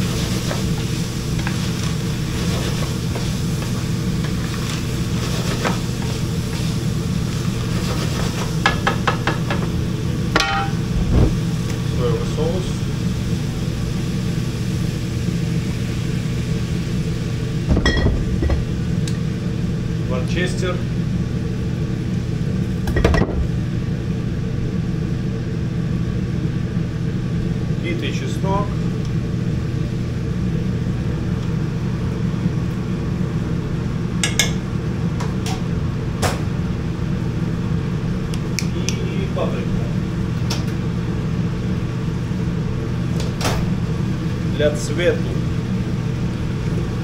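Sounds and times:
low machinery hum: 0:00.0 - 0:47.0
ship machinery hum: 0:09.3 - 0:14.4
metallic clank ringing: 0:10.4 - 0:10.8.

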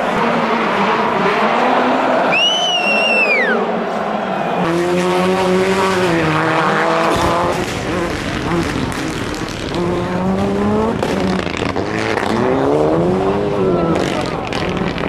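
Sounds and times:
rally car engines running hard: 0:04.6 - 0:15.0.

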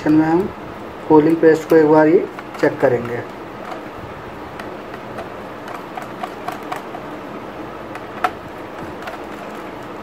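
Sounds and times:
screwdriver clicks and ticks: 0:04.6 - 0:07.1, 0:07.9 - 0:09.6.

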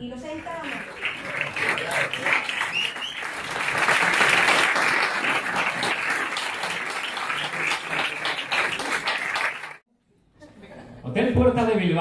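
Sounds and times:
audience applauding: 0:00.3 - 0:09.8.

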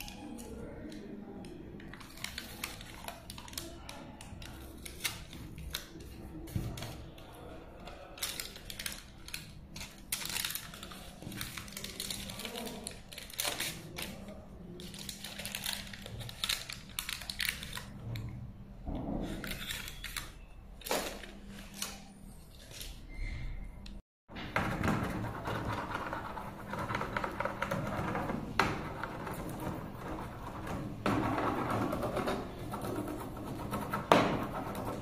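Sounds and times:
foil tape crinkling: 0:01.9 - 0:06.0, 0:07.9 - 0:18.0.

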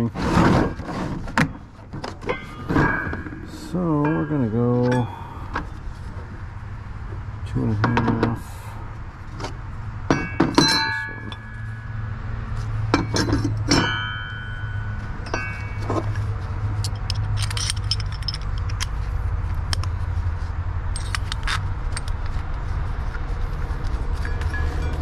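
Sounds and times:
metal parts clinking: 0:02.2 - 0:05.8, 0:10.1 - 0:11.8, 0:12.9 - 0:16.2, 0:16.8 - 0:19.9, 0:20.9 - 0:22.3
steady low hum: 0:02.2 - 0:25.0.

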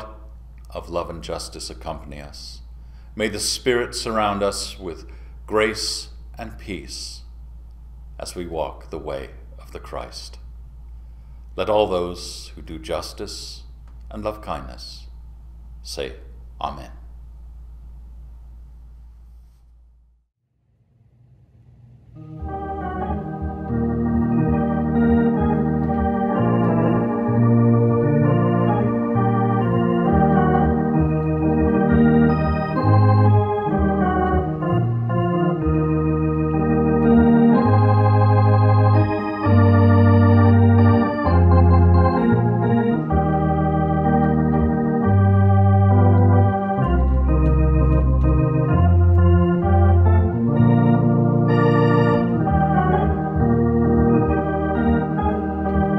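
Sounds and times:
electronic organ chords: 0:22.0 - 0:55.9.

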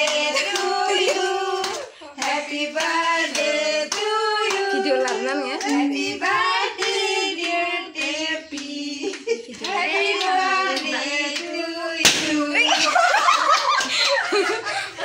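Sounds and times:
hands clapping: 0:00.0 - 0:14.2
women singing birthday song: 0:00.0 - 0:14.7
excited overlapping voices: 0:09.6 - 0:13.0
sharp smack: 0:12.0 - 0:12.4.

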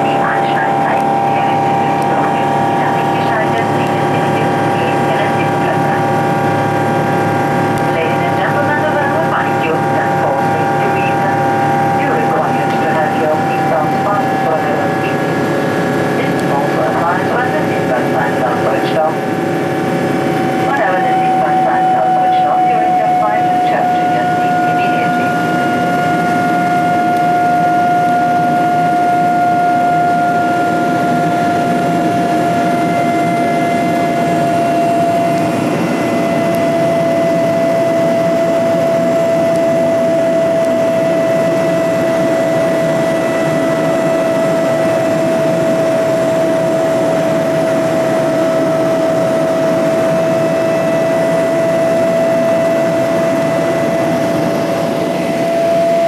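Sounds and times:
high engine whine: 0:00.0 - 0:56.0
jet engine roar in cabin: 0:00.0 - 0:56.0.

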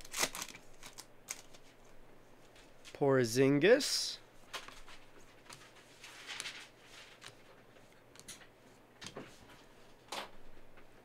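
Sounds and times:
cards rustling: 0:00.0 - 0:02.9, 0:04.4 - 0:09.7.

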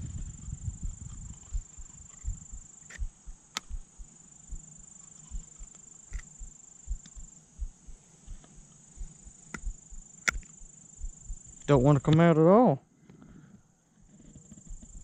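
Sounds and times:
insects buzzing: 0:00.0 - 0:15.0
sharp clicks: 0:01.3 - 0:03.8, 0:04.5 - 0:07.3, 0:09.5 - 0:10.7.

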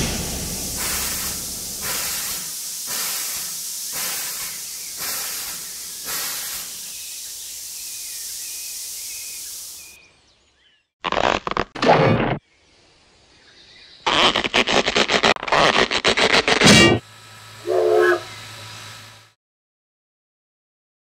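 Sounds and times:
steam locomotive hissing: 0:00.0 - 0:10.0, 0:17.0 - 0:19.4.

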